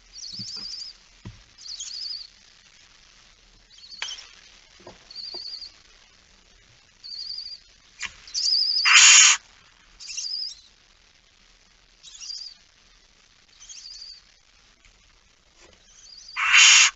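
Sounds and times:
owl chicks chirping: 0.1 - 1.0, 1.6 - 2.3, 7.0 - 7.6, 8.3 - 9.4, 10.0 - 10.7, 12.0 - 12.6, 13.5 - 14.3, 15.8 - 16.9
owl hissing: 8.3 - 9.4, 15.9 - 16.9.

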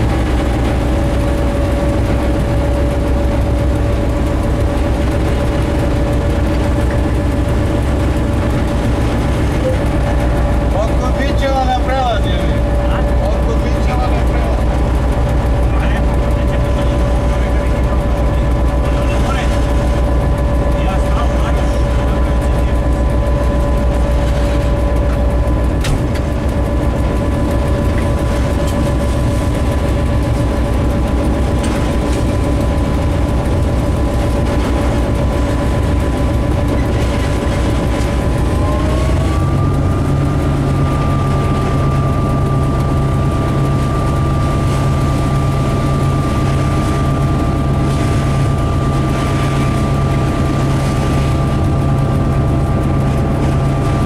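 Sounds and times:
diesel locomotive engine revving: 0.0 - 54.0.

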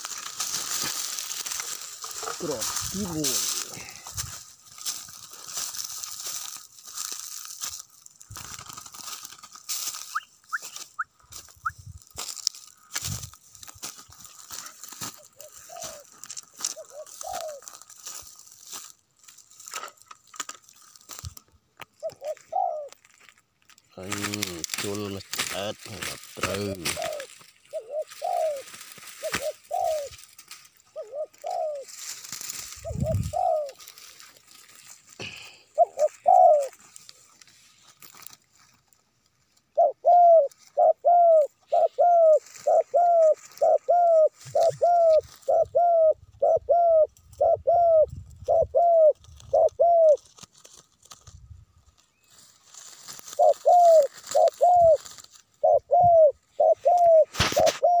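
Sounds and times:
dove cooing: 0.0 - 4.3, 15.0 - 17.9, 22.0 - 23.0, 24.0 - 34.3, 35.2 - 36.8, 39.7 - 50.3, 53.2 - 58.0.

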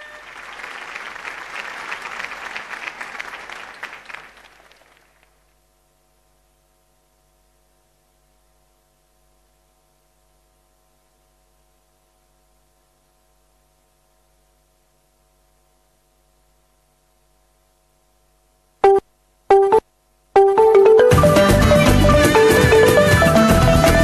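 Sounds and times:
faint steady hum: 0.0 - 23.9
music stabs: 18.8 - 19.8, 20.4 - 24.0.

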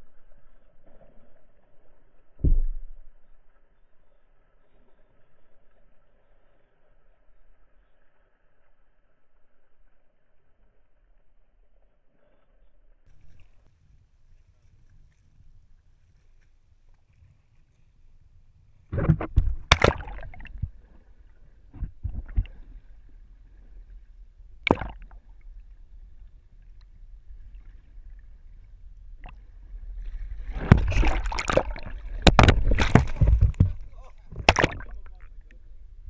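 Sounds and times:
water splashing and gurgling: 18.9 - 23.0, 24.6 - 25.6, 27.4 - 35.4.

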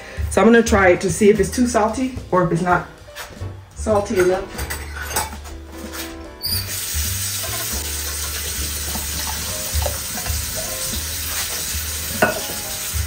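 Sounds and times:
chili sizzling in a pot: 6.4 - 13.0
water being added: 6.5 - 13.0.

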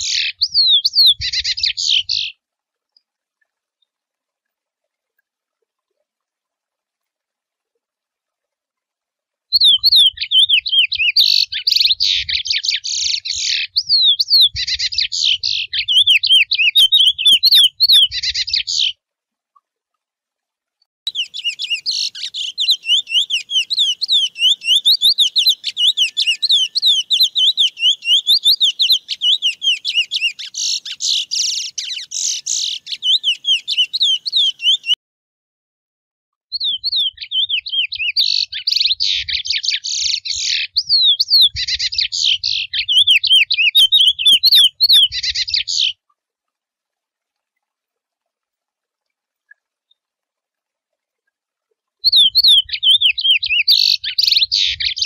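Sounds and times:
finch singing whistled warbling: 0.0 - 2.4, 9.5 - 18.9, 21.1 - 35.0, 36.6 - 46.0, 52.0 - 55.0.

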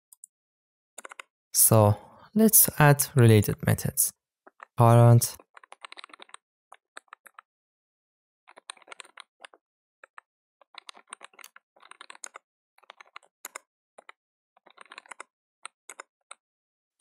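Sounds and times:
computer keyboard typing: 1.0 - 1.2, 8.5 - 16.4.

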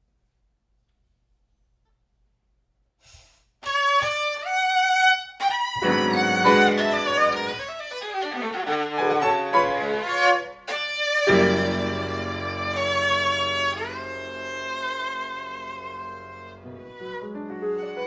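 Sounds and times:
viola playing: 3.6 - 18.0
grand piano chords: 5.8 - 7.8, 11.3 - 18.0.

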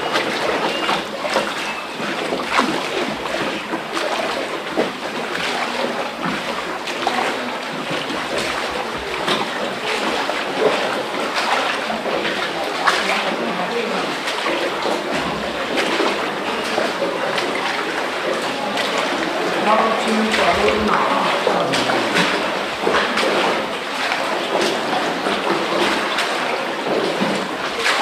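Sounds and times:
water splashing and sloshing: 0.0 - 28.0.

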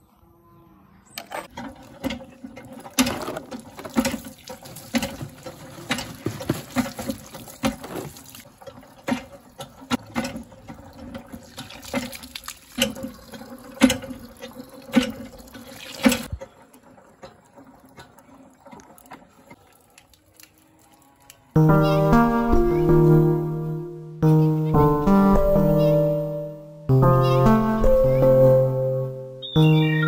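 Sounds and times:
water splashing into bottles: 1.5 - 21.6.

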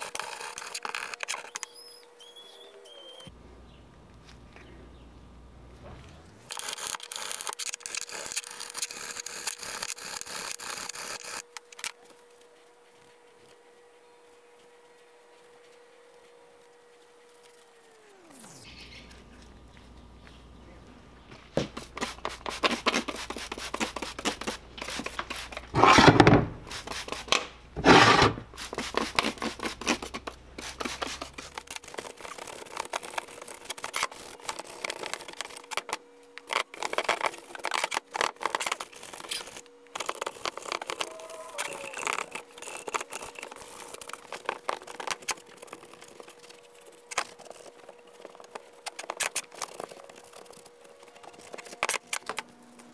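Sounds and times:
wire brush scrubbing metal: 21.8 - 34.9.

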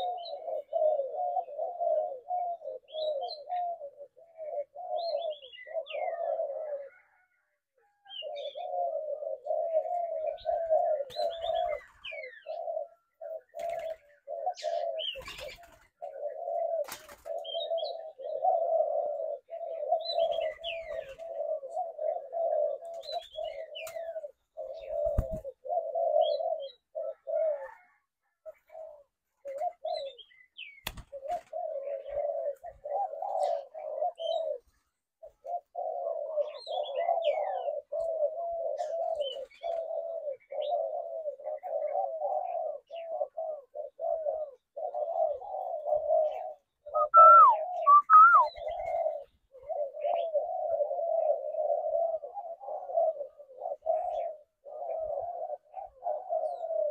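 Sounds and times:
doves cooing: 0.0 - 56.9
high falling bird chirps: 46.9 - 48.8.

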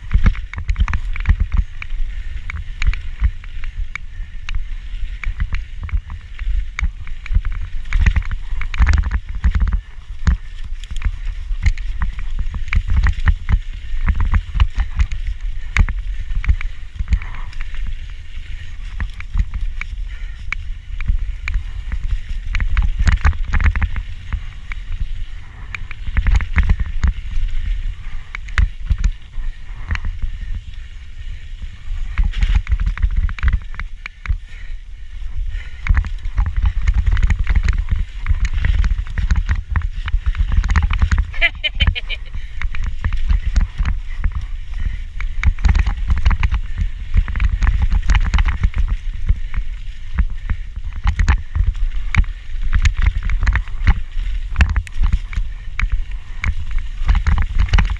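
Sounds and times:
low rumble of bike riding: 0.0 - 57.9
camera rattling in mount: 7.9 - 9.8, 32.0 - 33.8, 36.4 - 42.1, 45.5 - 46.6, 57.0 - 57.9.

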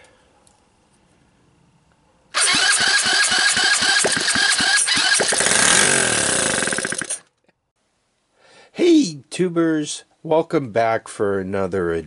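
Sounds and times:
small engine running loudly: 2.4 - 7.2.

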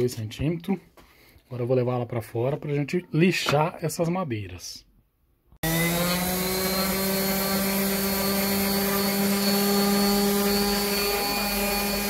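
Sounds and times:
electric sander sanding wood: 5.6 - 12.0.

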